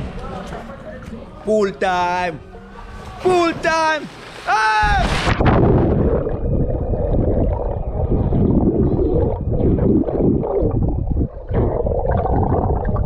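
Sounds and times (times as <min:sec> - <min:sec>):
splash into pool: 0:03.6 - 0:06.0
underwater bubbles gurgling: 0:05.3 - 0:13.0.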